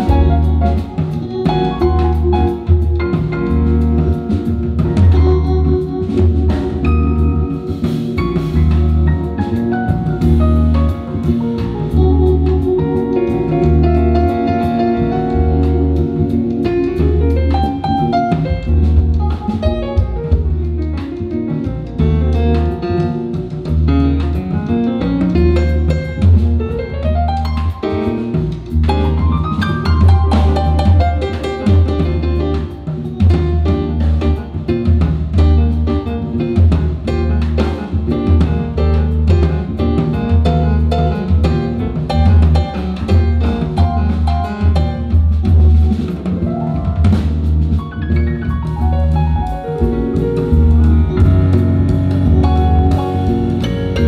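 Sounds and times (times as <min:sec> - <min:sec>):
drums keeping time: 0:00.0 - 0:54.0
low bass notes: 0:00.0 - 0:54.0.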